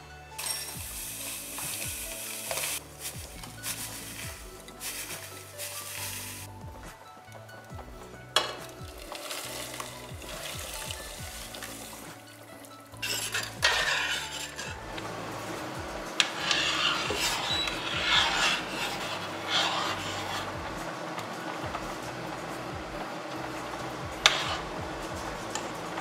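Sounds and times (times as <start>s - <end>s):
spoon stirring in a metal pot: 0.4s - 6.5s, 8.3s - 26.0s.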